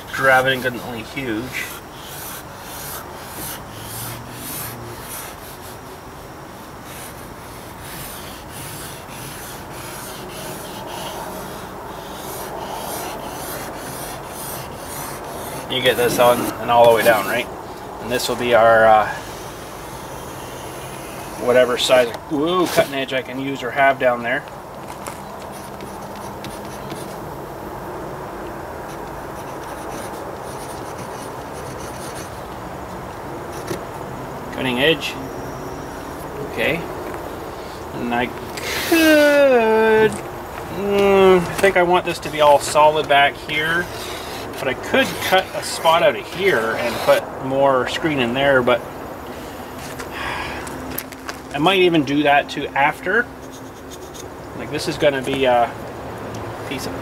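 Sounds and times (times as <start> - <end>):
steady low hum: 0.0 - 57.0
marker pen rubbing on paper: 1.5 - 5.8, 6.8 - 17.4, 19.1 - 23.1, 25.4 - 27.2, 28.9 - 32.4, 40.8 - 47.2, 53.4 - 54.3.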